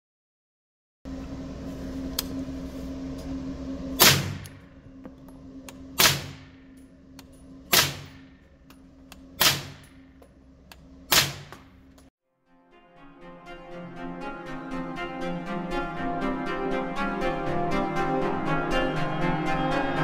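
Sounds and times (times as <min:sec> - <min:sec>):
ventilation hum: 0:01.1 - 0:12.1
gunshot echo off walls: 0:04.0 - 0:04.5, 0:06.0 - 0:06.6, 0:07.7 - 0:08.4, 0:09.4 - 0:09.9, 0:11.1 - 0:11.7
suppressed gunshots: 0:04.0 - 0:04.5, 0:06.0 - 0:06.6, 0:07.7 - 0:08.3, 0:09.4 - 0:09.9, 0:11.1 - 0:11.7.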